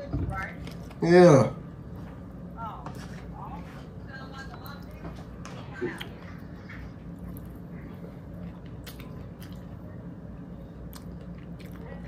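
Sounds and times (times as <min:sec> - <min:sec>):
low room hum: 0:00.0 - 0:12.0
person chewing: 0:05.8 - 0:10.0, 0:10.6 - 0:12.0.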